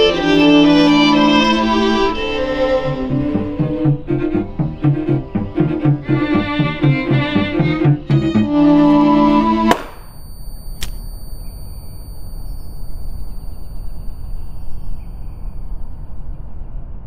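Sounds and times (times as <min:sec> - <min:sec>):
bowed string music: 0:00.0 - 0:09.8
sharp pop: 0:09.7 - 0:10.1.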